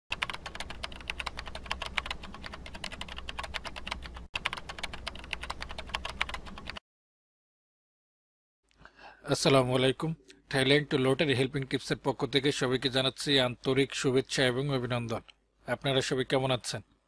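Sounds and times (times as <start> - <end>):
keyboard typing clicks: 0.1 - 6.8.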